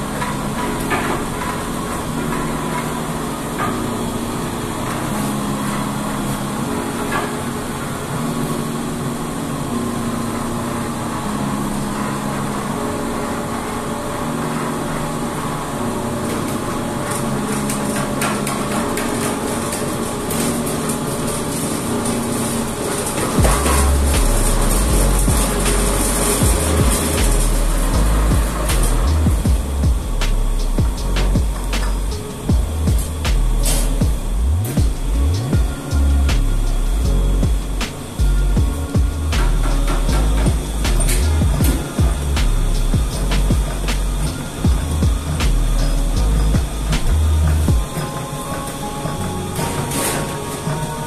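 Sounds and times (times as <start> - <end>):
dough kneading machine running: 0.0 - 51.0
machine knocks: 23.2 - 27.4.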